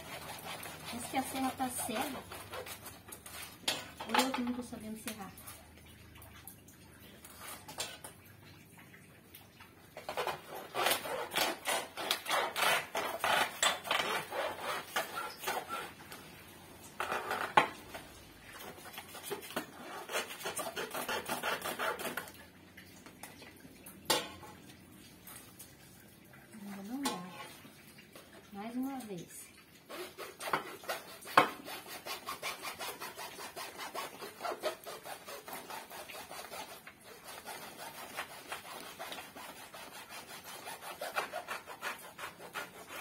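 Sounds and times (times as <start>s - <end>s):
hand saw rasping through soil: 0.0s - 4.4s, 10.1s - 16.0s, 18.6s - 22.3s, 29.9s - 43.0s.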